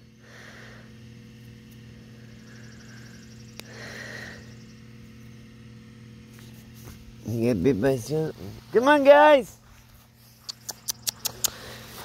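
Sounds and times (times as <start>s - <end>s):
low hum: 0.0s - 12.0s
sharp click: 10.4s - 11.6s.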